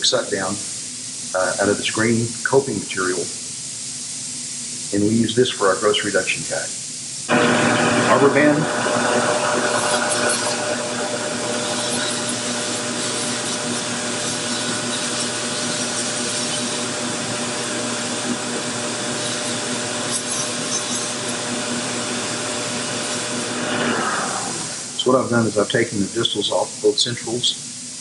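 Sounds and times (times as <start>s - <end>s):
grinding hiss on plastic: 0.0s - 28.0s
rotary handpiece motor hum: 7.3s - 25.4s.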